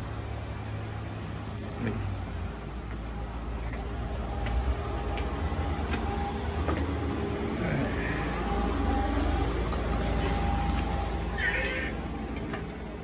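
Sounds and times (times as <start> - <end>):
footsteps on wooden deck: 2.7 - 7.6, 12.3 - 13.0.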